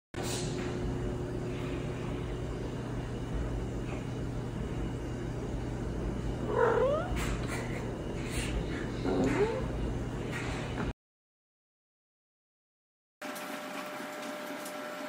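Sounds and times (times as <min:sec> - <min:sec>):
cat call rising in pitch: 0:06.5 - 0:07.2.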